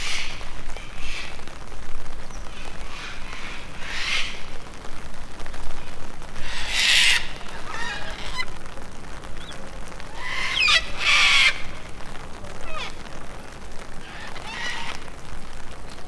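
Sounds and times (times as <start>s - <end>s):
bird harsh squawks: 2.9s - 4.4s, 6.4s - 8.5s, 9.4s - 11.9s, 12.6s - 13.0s, 14.0s - 15.0s
thin gliding bird calls: 9.4s - 11.8s.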